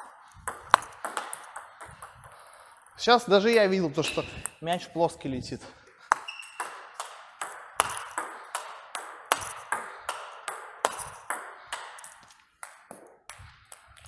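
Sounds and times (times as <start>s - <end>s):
table tennis ball clicking: 0.4s - 2.5s, 6.1s - 14.0s.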